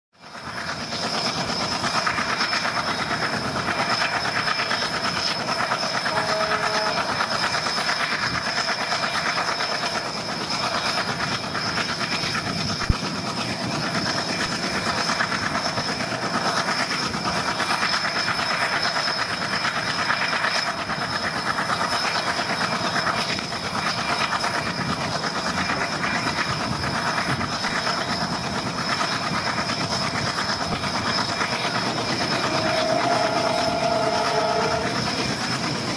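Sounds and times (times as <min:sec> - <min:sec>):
train wheels rumbling on rails: 0:00.2 - 0:35.9
high whine: 0:29.8 - 0:35.9.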